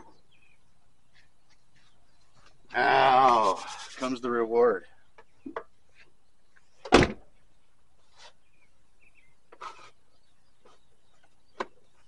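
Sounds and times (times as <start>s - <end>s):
loud thump: 6.9s - 7.2s.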